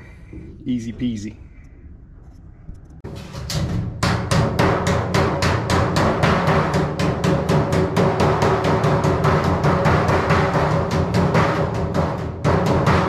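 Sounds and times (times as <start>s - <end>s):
hammer blows on sheet metal: 3.0s - 13.0s.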